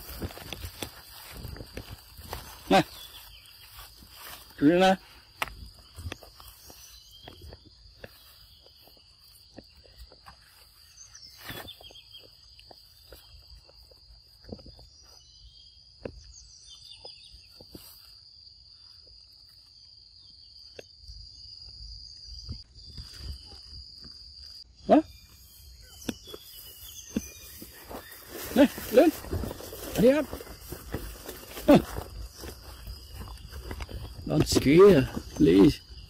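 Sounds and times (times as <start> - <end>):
footsteps on leaf litter: 0.0 - 15.0, 25.7 - 36.0
insects droning: 0.0 - 36.0.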